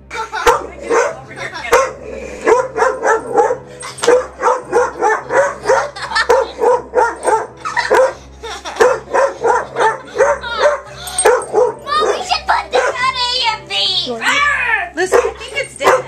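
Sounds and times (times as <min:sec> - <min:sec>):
dog barking sharply: 0:00.5 - 0:08.2, 0:15.2 - 0:16.0.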